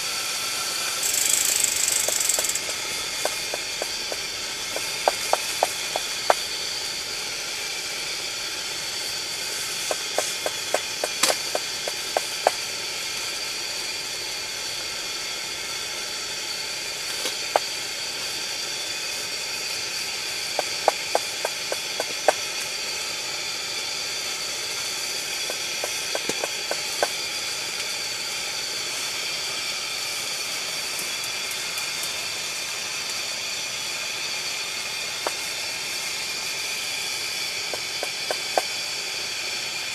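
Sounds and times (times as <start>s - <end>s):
pressure lantern hissing: 0.0s - 39.9s
sharp clicks: 1.0s - 6.4s, 20.6s - 22.4s, 25.5s - 27.1s.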